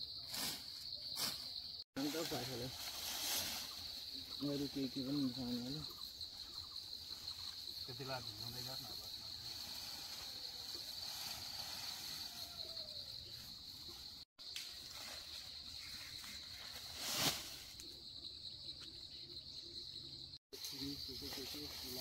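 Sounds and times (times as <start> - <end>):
insects droning: 0.0 - 22.0
leaves and branches rustling: 0.3 - 6.1, 6.9 - 18.0.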